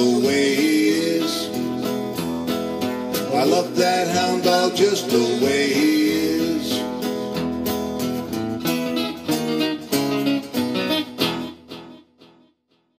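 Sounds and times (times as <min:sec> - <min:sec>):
acoustic guitars strumming chords: 0:00.0 - 0:12.9.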